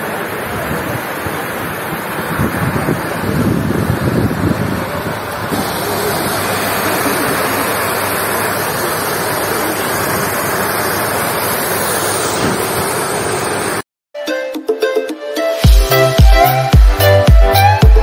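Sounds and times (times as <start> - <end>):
water pouring over weir: 5.5 - 13.5.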